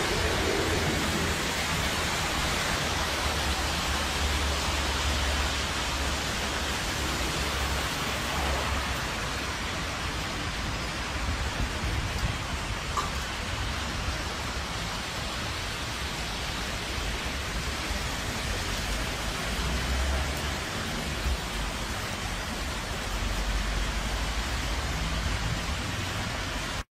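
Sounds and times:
low rumbles: 0.0s - 4.3s
steady rain falling: 0.0s - 26.9s.

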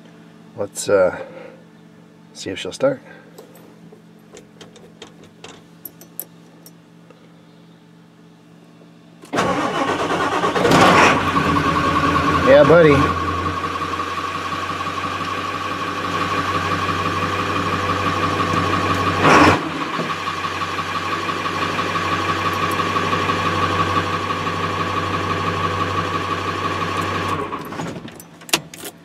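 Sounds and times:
diesel truck engine idling: 11.2s - 27.6s.

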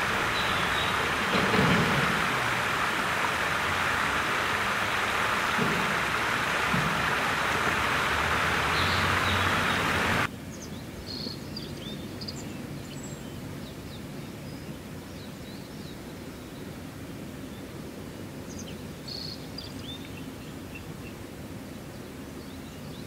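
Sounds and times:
rushing river water: 0.0s - 10.3s.

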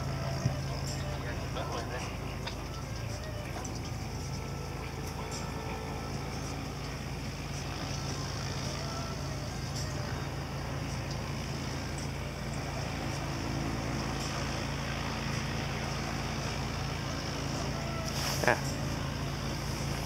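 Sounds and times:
airplane engine and propeller hum: 0.0s - 20.0s.

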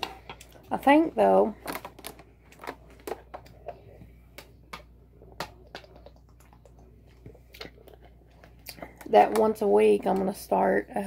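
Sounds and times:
plastic bottle clicks and crackles: 1.6s - 3.8s, 4.4s - 6.8s.

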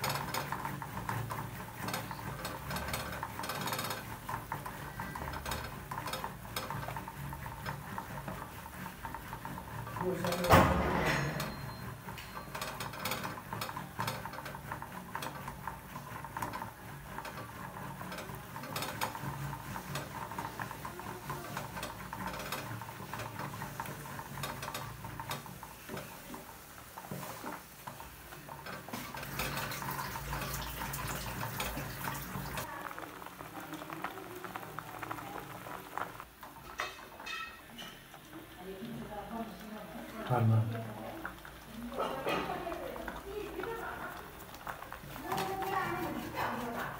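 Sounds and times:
soup bubbling: 11.8s - 46.9s.

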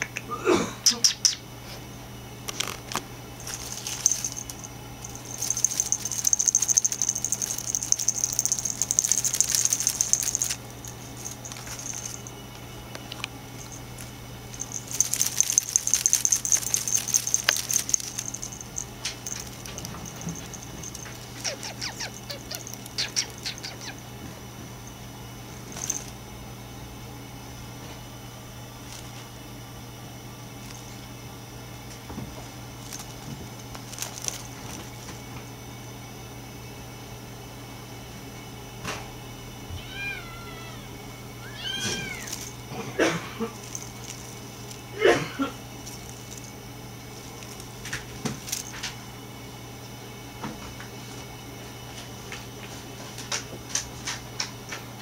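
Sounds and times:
steady low hum: 0.0s - 55.0s
kitten scratching at woven basket: 2.6s - 24.0s, 32.8s - 35.3s, 41.9s - 42.7s, 43.5s - 45.0s, 45.7s - 46.5s, 47.1s - 49.0s.

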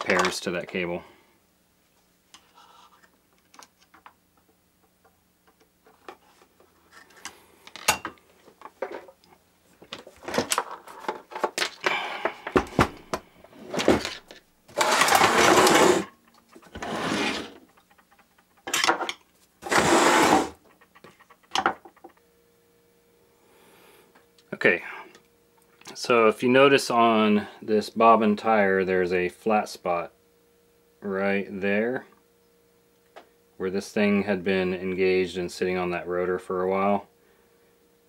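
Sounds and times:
machine scraping on wooden case: 14.7s - 17.8s, 19.6s - 20.6s.

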